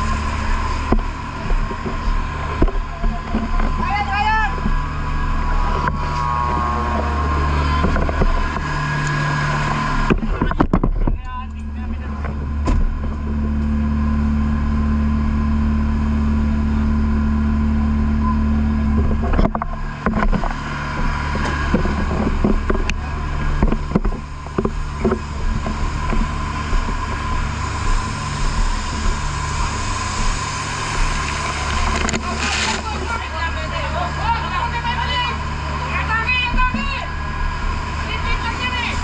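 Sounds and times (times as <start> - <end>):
fire truck engine running: 0.0 - 39.0
knocks and clatter: 10.0 - 11.3, 18.9 - 29.6.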